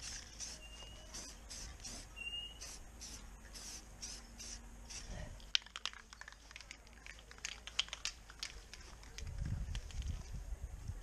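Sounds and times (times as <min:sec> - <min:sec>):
spray-paint can hissing: 0:00.0 - 0:06.8.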